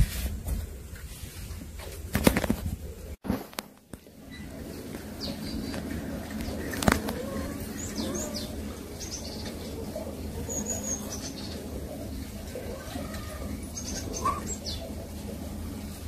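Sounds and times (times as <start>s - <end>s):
birds chirping: 4.1s - 16.0s.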